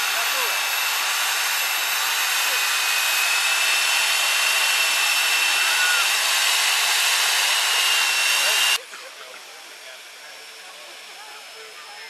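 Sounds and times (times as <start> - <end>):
heat gun blowing air: 0.0 - 8.8.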